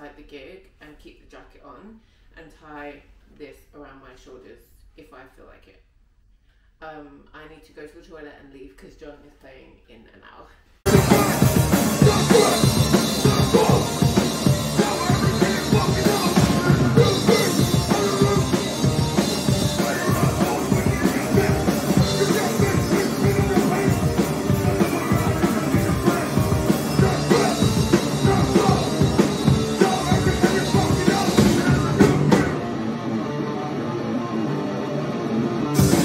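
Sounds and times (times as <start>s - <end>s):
drum kit: 10.8s - 33.6s, 35.4s - 36.0s
electric guitar: 10.9s - 36.0s.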